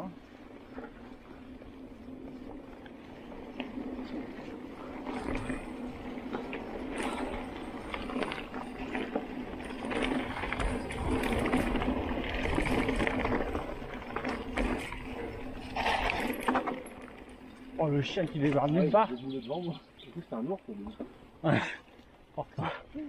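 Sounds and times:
bike tyres crunching on dirt: 0.0s - 22.6s
bike rattling and knocking: 0.7s - 21.8s.

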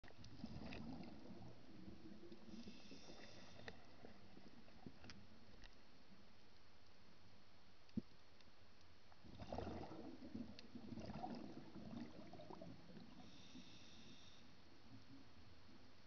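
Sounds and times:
underwater bubbling from exhaled breath: 0.3s - 3.6s, 9.3s - 13.8s.

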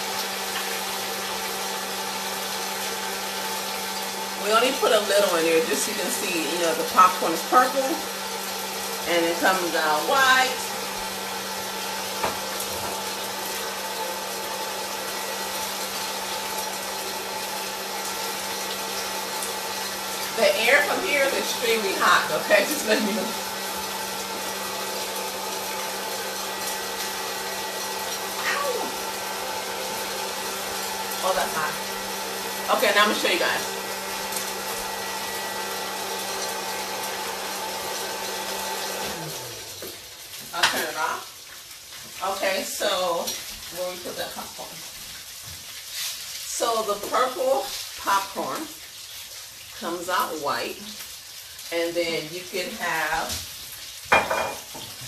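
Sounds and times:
popcorn popper fan humming: 0.0s - 41.5s.

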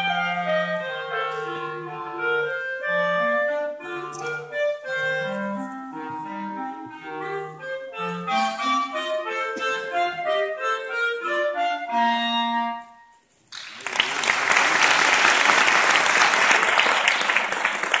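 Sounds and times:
two clarinets playing a duet: 0.0s - 13.2s
audience applause: 13.5s - 18.0s.

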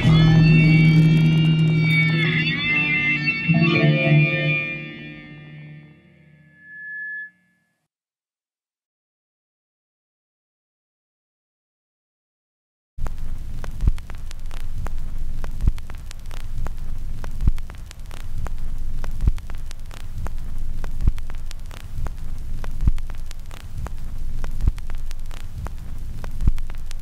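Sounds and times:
low droning hum: 0.0s - 5.4s
crackling static: 0.0s - 5.9s, 13.0s - 27.0s.

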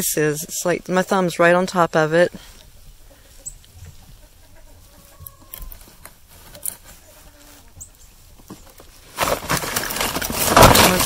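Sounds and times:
ice scratching and crackling: 9.1s - 11.0s
ice cracking and shattering: 9.2s - 11.0s.

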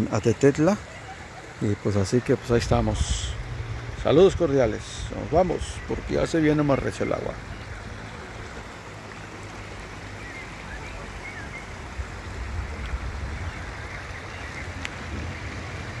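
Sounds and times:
river water rushing over rocks: 0.0s - 16.0s.

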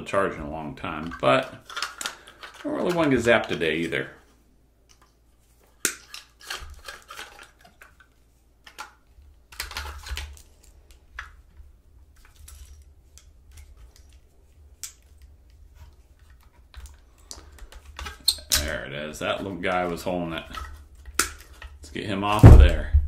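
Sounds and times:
plastic housing rattling: 1.0s - 3.6s, 15.8s - 18.7s.

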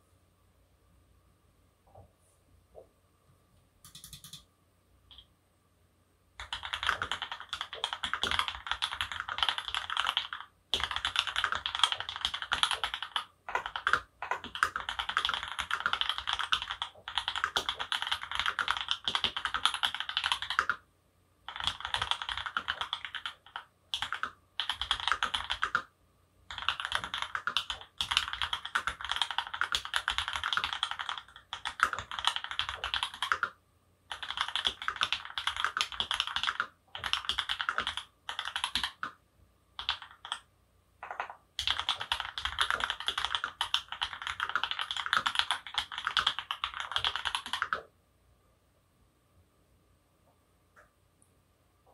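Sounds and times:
fast typing on mechanical keyboard: 3.8s - 4.4s, 6.4s - 20.8s, 21.5s - 25.9s, 26.5s - 39.2s, 39.8s - 40.4s, 41.0s - 47.9s.

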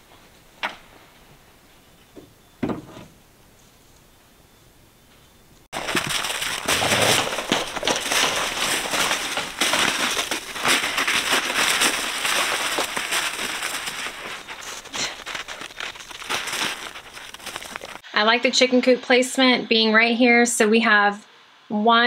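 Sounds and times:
footsteps crunching in snow: 5.7s - 18.0s.

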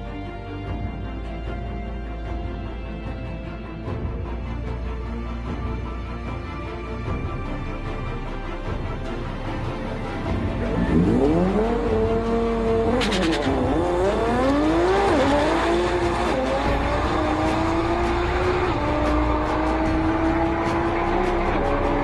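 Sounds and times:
car engine accelerating hard: 10.4s - 22.0s.

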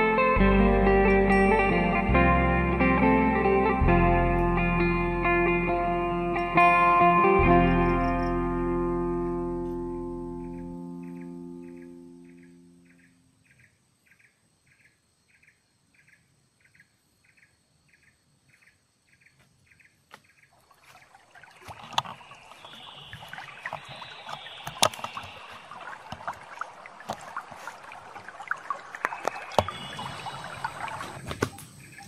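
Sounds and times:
rustling leaves and twigs: 19.4s - 32.0s
faint high chirps: 29.0s - 32.0s.

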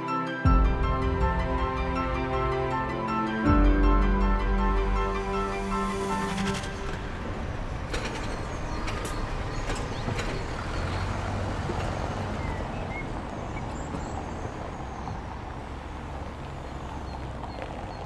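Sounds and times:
distant traffic rumble: 3.9s - 18.0s.

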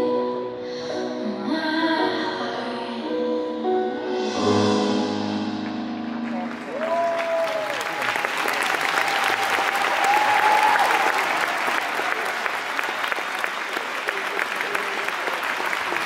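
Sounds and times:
audience applauding: 6.2s - 16.0s.

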